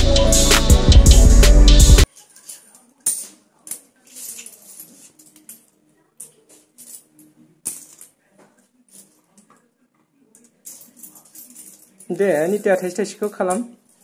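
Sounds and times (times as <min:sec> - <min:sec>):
coins clinking on concrete: 0:02.0 - 0:08.2, 0:08.8 - 0:09.6, 0:10.3 - 0:14.0.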